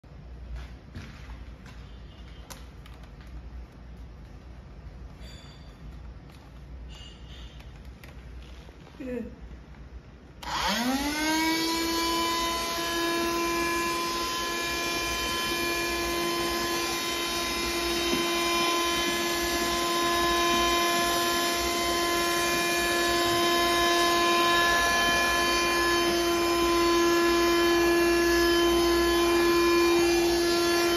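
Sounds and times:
handheld vacuum cleaner whine: 0:10.4 - 0:30.9.

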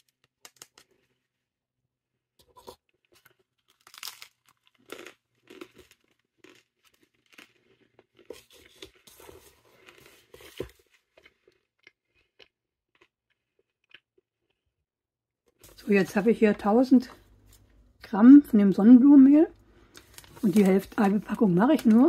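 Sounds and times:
bread crust crackling: 0:03.4 - 0:11.7, 0:19.8 - 0:22.0.

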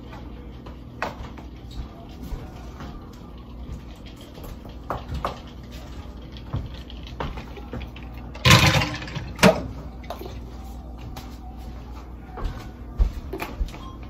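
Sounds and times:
plastic bottles clicking and knocking: 0:06.7 - 0:09.7
plastic bottles clattering: 0:07.3 - 0:09.7.

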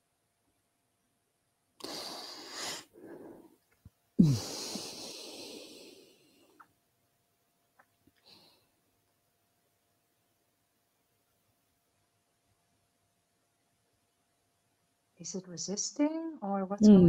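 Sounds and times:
person breathing in deeply: 0:01.8 - 0:03.6, 0:04.2 - 0:06.5
loud exhalation with vocal tone: 0:04.2 - 0:06.0.

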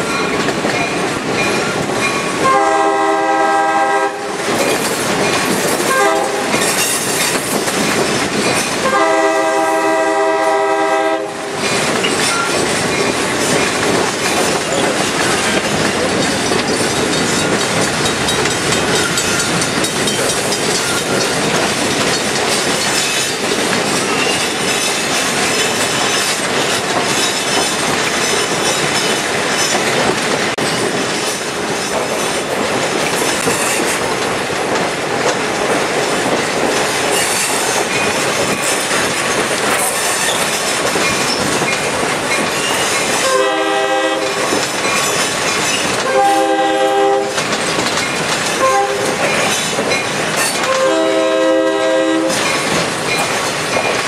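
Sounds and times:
train wheels clattering on rails: 0:00.0 - 0:54.0
locomotive air horn blasts: 0:02.4 - 0:04.3, 0:05.9 - 0:06.5, 0:08.8 - 0:11.5, 0:43.2 - 0:44.4, 0:46.1 - 0:47.4, 0:48.6 - 0:49.2, 0:50.7 - 0:52.4.

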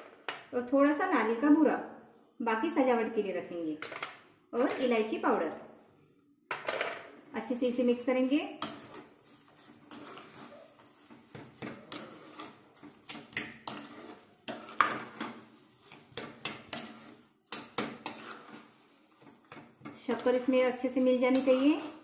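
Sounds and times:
plastic spatula scraping a pan: 0:08.0 - 0:22.0.

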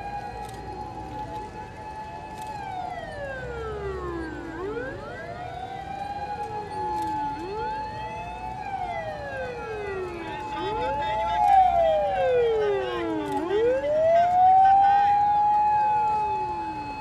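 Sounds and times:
fire engine sirens wailing: 0:00.0 - 0:17.0.

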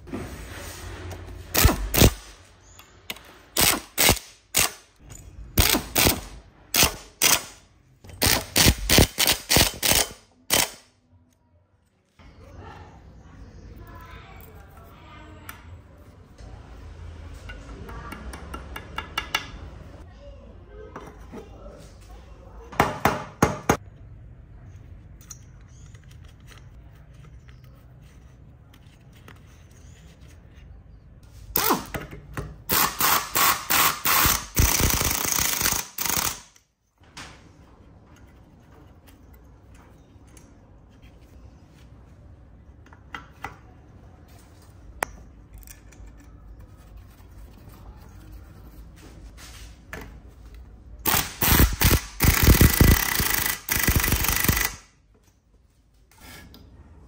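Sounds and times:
workshop tool rapid impacts: 0:01.5 - 0:02.4, 0:03.1 - 0:10.9, 0:22.8 - 0:23.8, 0:31.5 - 0:36.6, 0:51.0 - 0:55.0.

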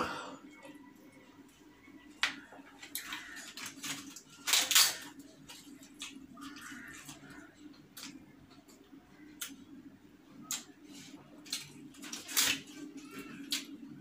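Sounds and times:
papadum crackling crunches: 0:02.4 - 0:09.6, 0:10.5 - 0:14.0.

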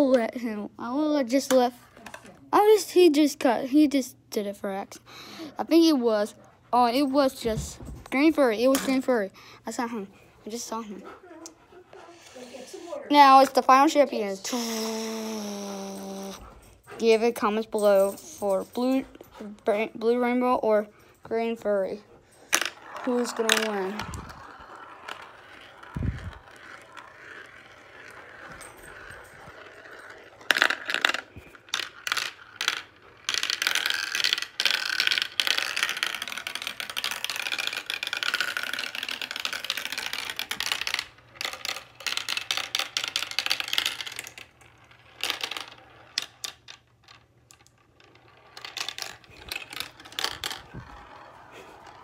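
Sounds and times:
marbles rattling through plastic tubes: 0:13.2 - 0:52.0.

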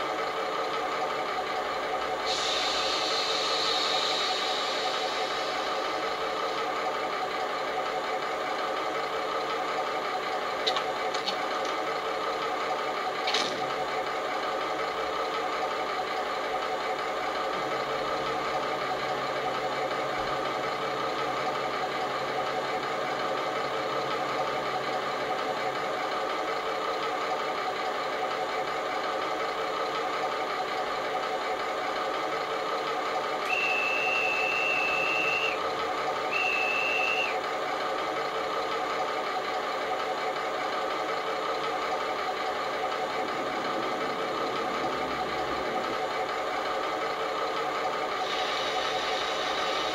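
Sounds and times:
diesel engine idling through speaker: 0:00.0 - 0:49.9
shrill whistle: 0:33.4 - 0:35.6, 0:36.3 - 0:37.4.

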